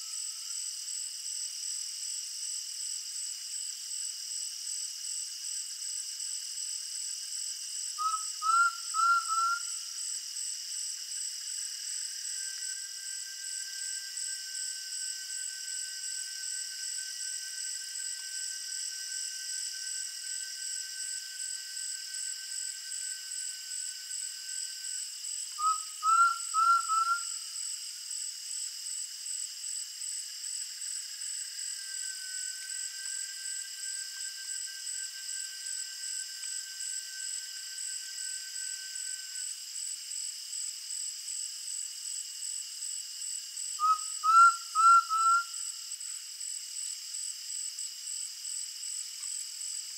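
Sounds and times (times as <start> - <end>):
insect chorus trilling: 0.0 - 49.9
bird whistled calls: 8.0 - 9.7, 25.6 - 27.4, 43.8 - 45.6.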